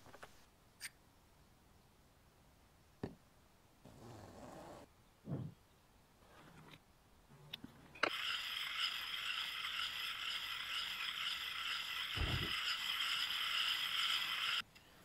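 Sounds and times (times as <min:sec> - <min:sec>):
dull thump: 0:12.2 - 0:12.5.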